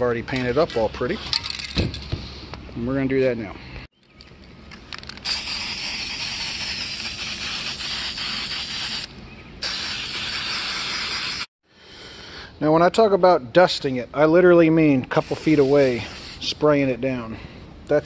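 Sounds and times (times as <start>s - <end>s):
spray paint can hissing: 5.0s - 11.5s, 15.2s - 16.5s.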